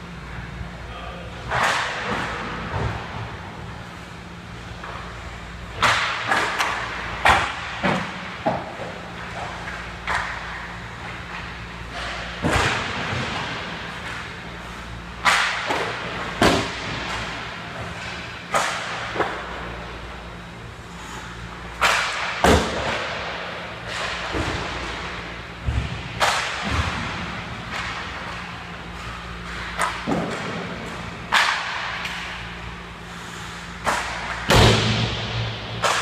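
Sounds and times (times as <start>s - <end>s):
steady low hum: 0.0s - 36.0s
pucks hitting boards: 1.4s - 3.4s, 5.8s - 14.4s, 15.2s - 19.7s, 21.8s - 32.4s, 33.8s - 36.0s
sticks cracking against pucks: 21.8s - 23.1s, 27.7s - 32.4s, 35.8s - 36.0s.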